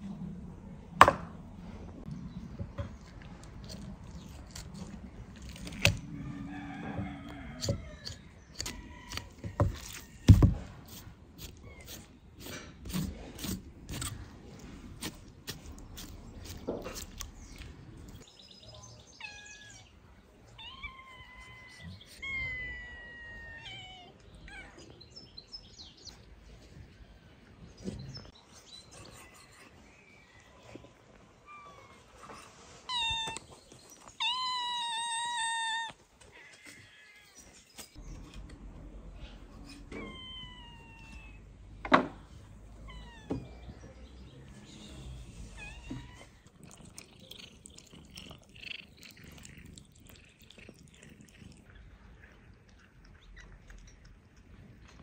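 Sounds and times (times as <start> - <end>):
knife chopping on wooden board: 1.0 - 1.3
birds chirping: 14.6 - 41.4.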